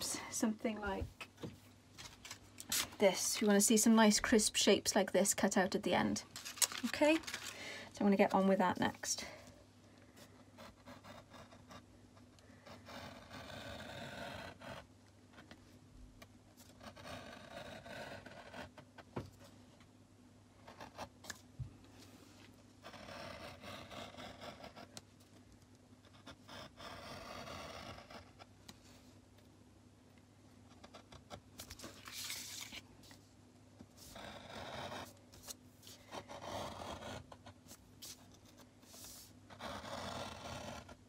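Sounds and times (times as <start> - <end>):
pencil scratching on paper: 10.2 - 15.5, 16.5 - 19.0, 20.6 - 21.1, 22.8 - 25.0, 26.0 - 29.0, 34.0 - 41.0.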